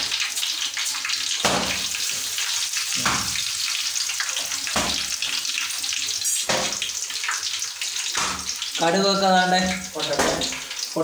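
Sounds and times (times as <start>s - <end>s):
seeds and onions frying in oil: 0.0s - 11.0s.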